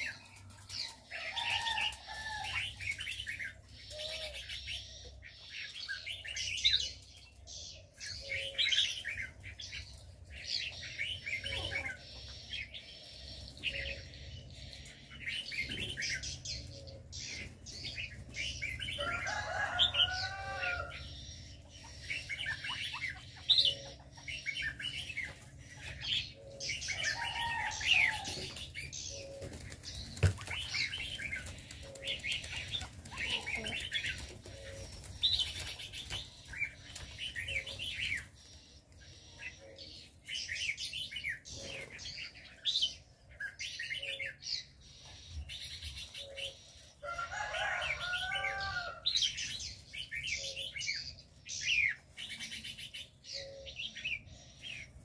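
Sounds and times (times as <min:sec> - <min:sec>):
small birds chirping: 0:00.0 - 0:55.0
doves cooing: 0:07.3 - 0:38.5.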